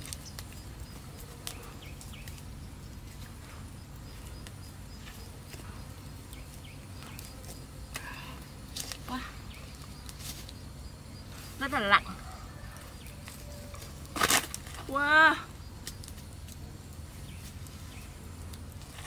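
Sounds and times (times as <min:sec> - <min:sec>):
birds chirping: 0:00.0 - 0:14.1, 0:17.1 - 0:18.4
wood fire crackling: 0:00.0 - 0:19.0.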